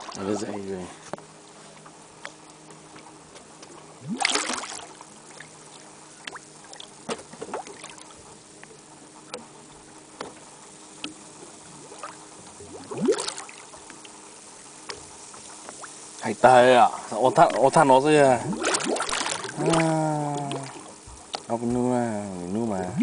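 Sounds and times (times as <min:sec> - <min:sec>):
water splashes: 0:00.0 - 0:00.5, 0:03.8 - 0:08.3, 0:11.0 - 0:21.8
faint steady hum: 0:00.0 - 0:23.0
water drips and ticks: 0:01.8 - 0:09.5, 0:10.1 - 0:23.0
water sloshing against boat: 0:14.8 - 0:21.9.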